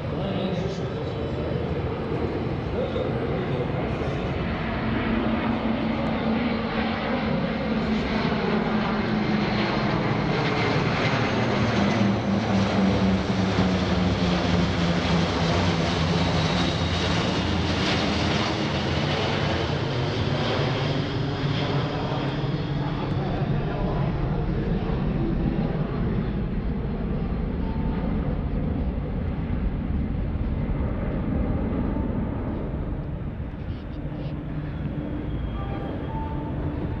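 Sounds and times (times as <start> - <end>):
jet engines droning overhead: 0.0 - 37.0
radial piston engines droning: 32.8 - 37.0.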